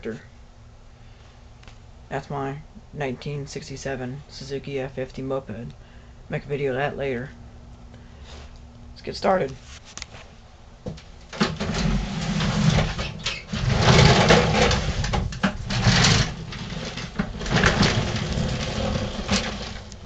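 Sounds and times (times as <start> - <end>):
lawn mower rolling on wooden floor: 11.3 - 20.0.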